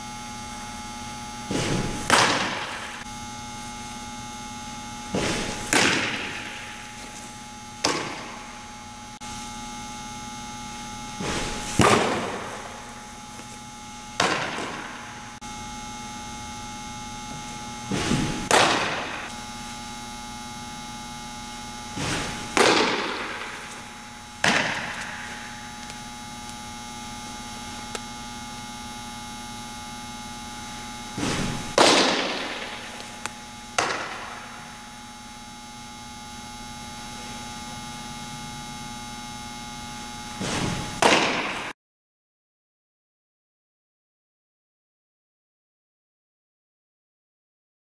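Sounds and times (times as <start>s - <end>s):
electrical hum: 0.0s - 41.8s
balls smacking into mitt: 5.2s - 6.6s, 24.4s - 26.0s, 31.2s - 34.6s.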